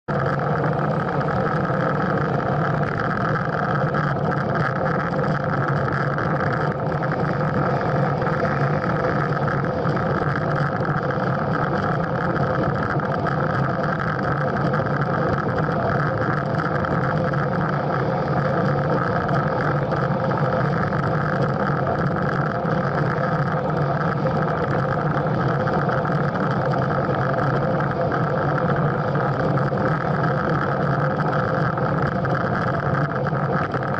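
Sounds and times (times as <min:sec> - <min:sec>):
road noise: 0:00.1 - 0:33.9
rushing wind: 0:00.1 - 0:33.9.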